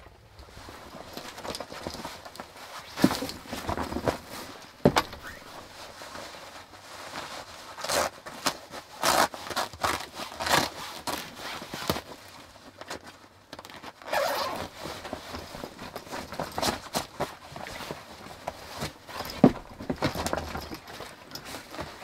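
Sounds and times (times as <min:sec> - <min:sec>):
clothing and shoes rustling: 0:00.3 - 0:22.0.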